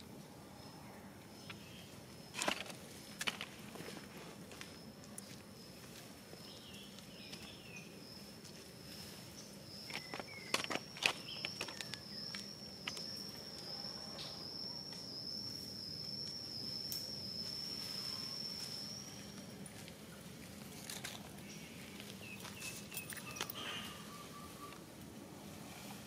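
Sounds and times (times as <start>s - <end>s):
high-pitched insect trill: 1.4s - 20.1s, 20.8s - 24.8s
clicks and scuffs: 9.8s - 13.2s.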